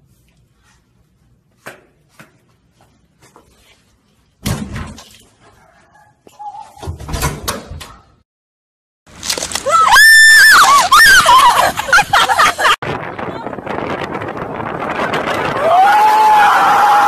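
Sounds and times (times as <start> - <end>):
bangs and thumps at door: 4.4 - 5.0, 6.8 - 8.0.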